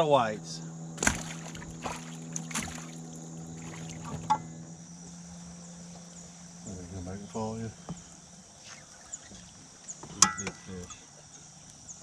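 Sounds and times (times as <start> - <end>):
steady low hum: 0.0 - 12.0
light knocks and clicks of gear: 9.2 - 12.0.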